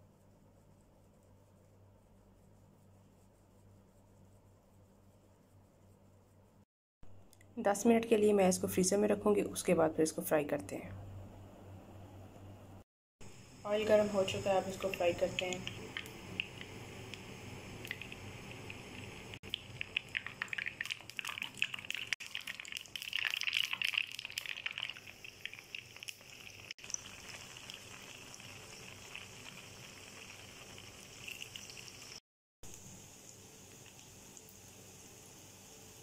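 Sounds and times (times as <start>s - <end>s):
potatoes frying in hot oil: 13.7s - 32.2s, 32.8s - 36.0s.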